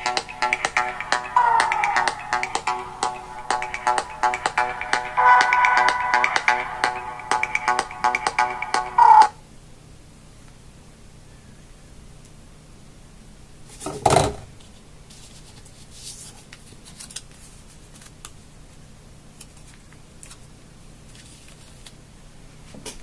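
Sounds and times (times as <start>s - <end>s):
paper rustling: 14.6s - 18.3s, 19.4s - 22.0s.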